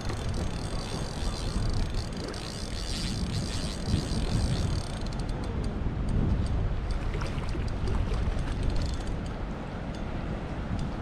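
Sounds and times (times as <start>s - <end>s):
fishing reel whirring: 0.0s - 5.5s, 7.4s - 9.3s
wind on microphone: 0.0s - 11.0s.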